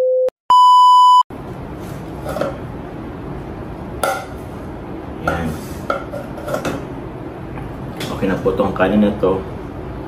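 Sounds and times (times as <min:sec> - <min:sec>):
electronic test beep: 0:00.0 - 0:01.2.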